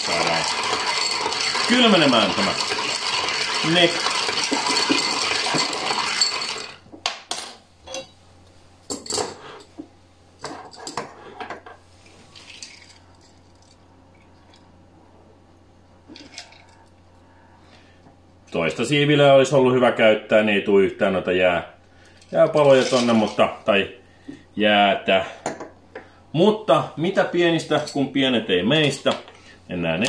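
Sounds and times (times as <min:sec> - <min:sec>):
ice clinking in stirred glass: 0:00.0 - 0:06.8.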